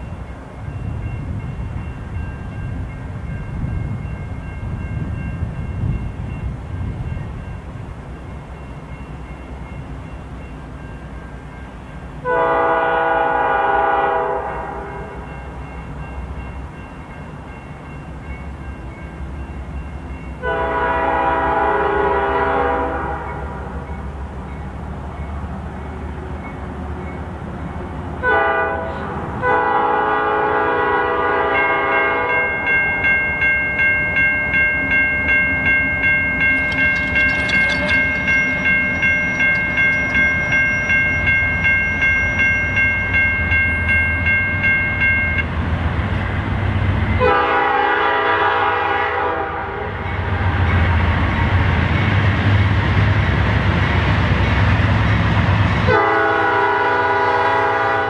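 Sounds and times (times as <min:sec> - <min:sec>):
crossing warning bell ringing: 0:00.0 - 0:58.0
freight train rumble: 0:00.0 - 0:58.0
locomotive air horn blasts: 0:12.2 - 0:15.1, 0:20.4 - 0:23.5, 0:28.2 - 0:32.4, 0:47.2 - 0:49.9, 0:55.9 - 0:58.0.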